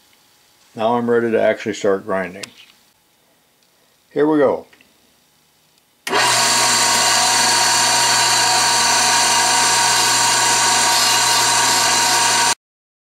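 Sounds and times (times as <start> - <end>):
drill grinder grinding steel: 6.1 - 12.6.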